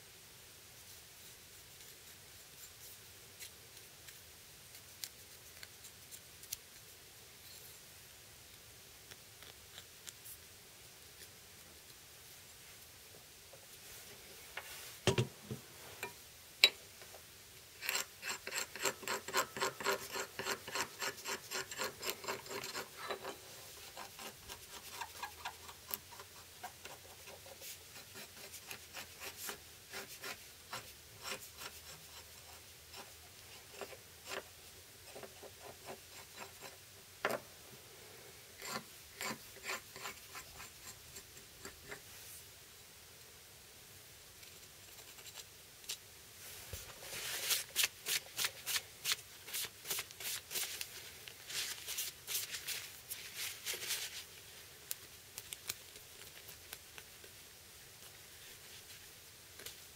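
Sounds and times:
hand scraping knife blade: 17.8 - 23.4.

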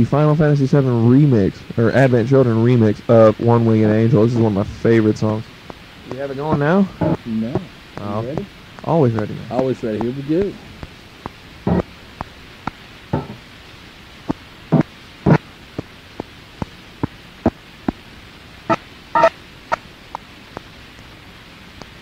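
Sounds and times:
cassette tape hiss: 0.0 - 22.0
sharp clicks and pops: 5.6 - 13.4, 14.2 - 18.0.

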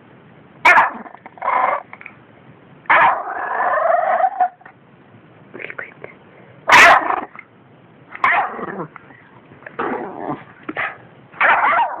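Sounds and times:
small dog barking: 0.6 - 1.8, 2.9 - 3.4, 6.7 - 7.3, 8.2 - 8.8, 10.7 - 12.0.

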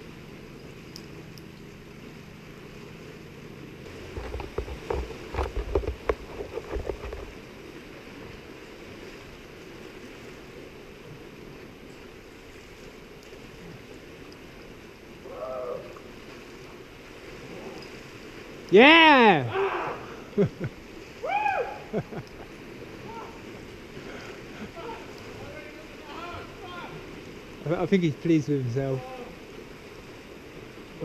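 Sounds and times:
sea surf: 0.0 - 31.0
wind: 0.0 - 31.0.

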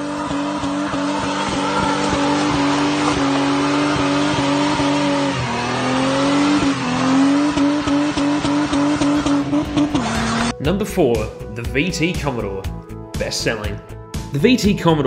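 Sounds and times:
car engine revving high: 0.0 - 10.5.

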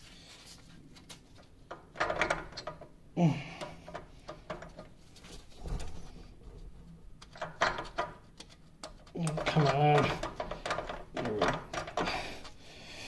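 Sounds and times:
metal parts clanking and scraping: 3.8 - 12.6.

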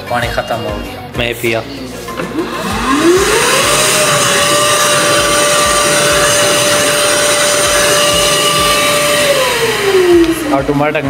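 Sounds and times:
hand dryer whine and air rush: 2.1 - 11.0.

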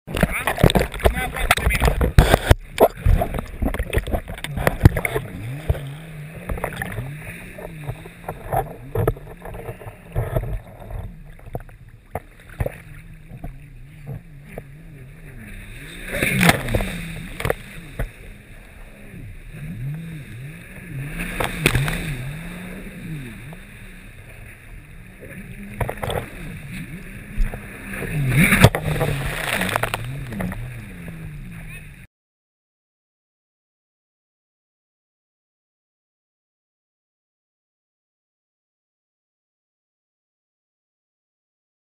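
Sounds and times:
hull slapping water: 0.1 - 32.1
jet ski engine: 0.1 - 32.1
loud splashes: 27.7 - 31.2.

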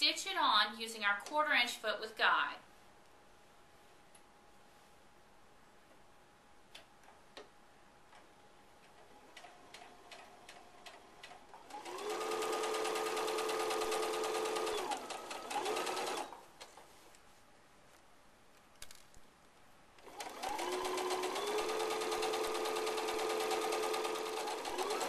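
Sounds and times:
sewing machine stitching: 8.9 - 16.4, 20.0 - 25.0.

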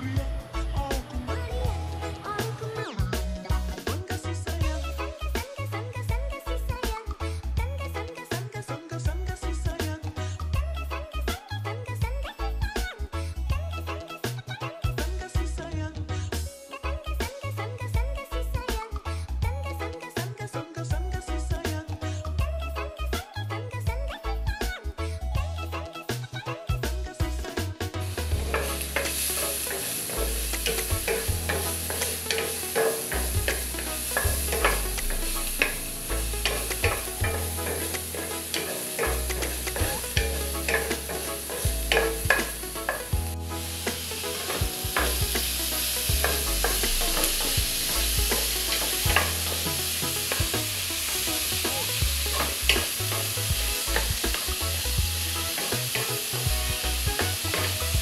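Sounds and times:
garlic and onion sizzling in oil: 27.8 - 58.0
wooden spatula scraping a pan: 28.2 - 51.6, 52.2 - 58.0.

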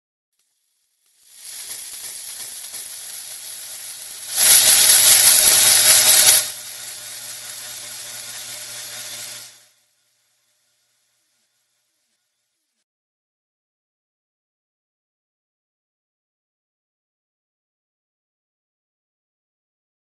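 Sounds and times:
bone saw whirring: 1.3 - 9.8.

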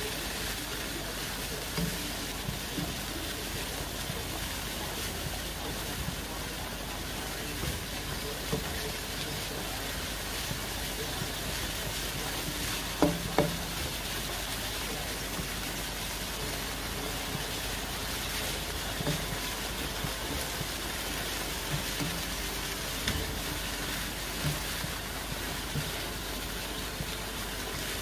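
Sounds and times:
food sizzling in a wok: 0.0 - 28.0
spoon knocking against pan: 13.0 - 13.6.

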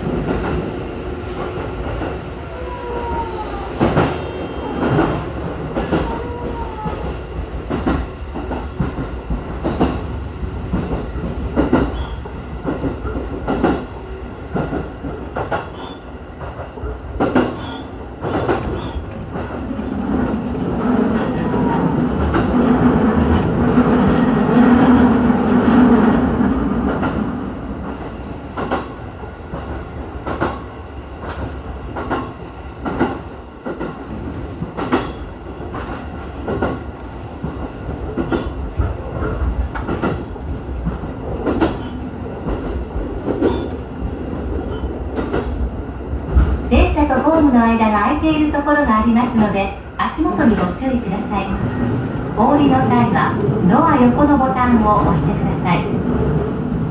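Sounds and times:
train rumble: 0.0 - 56.9
train wheels clacking over rail joints: 31.2 - 43.8, 44.7 - 45.6.

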